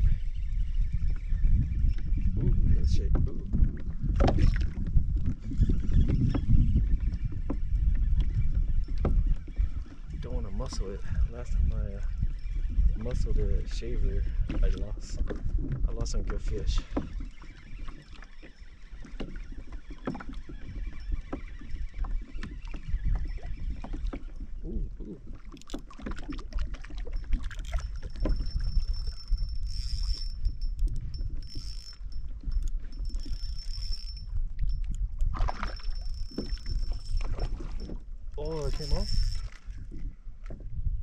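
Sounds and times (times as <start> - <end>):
water slapping against kayak hull: 3.1 - 5.4, 14.3 - 28.9, 35.0 - 40.8.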